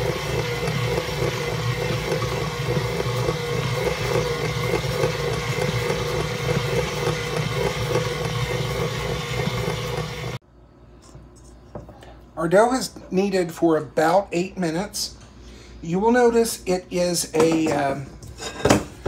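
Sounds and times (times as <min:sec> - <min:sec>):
stand mixer motor kneading dough: 0:00.0 - 0:10.4.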